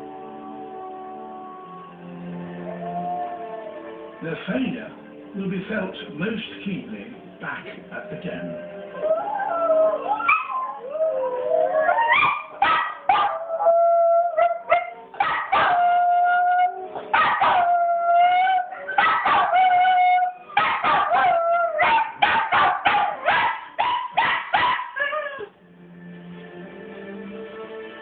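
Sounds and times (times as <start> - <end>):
wolf howls on television: 0.0 - 5.3, 6.7 - 25.6
small dog howling: 8.1 - 25.5
dog yips and barks: 12.0 - 13.4, 14.4 - 15.8, 17.1 - 17.7, 18.8 - 19.7, 20.6 - 25.5.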